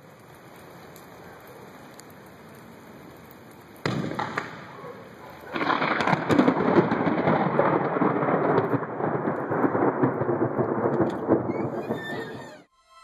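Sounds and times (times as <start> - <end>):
rolling thunder: 3.8 - 12.7.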